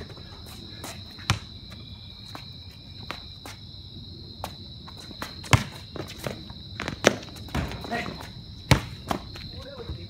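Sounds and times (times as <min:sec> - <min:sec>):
insects trilling: 0:00.0 - 0:10.0
basketball bouncing on concrete: 0:00.8 - 0:03.3, 0:05.2 - 0:10.0.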